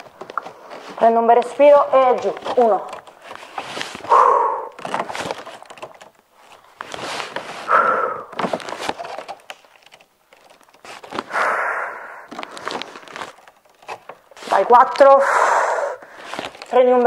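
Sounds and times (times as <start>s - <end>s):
light crackling and clicking: 0.0s - 4.0s
woman breathing out hard: 7.7s - 8.3s, 11.3s - 12.8s, 15.2s - 16.4s.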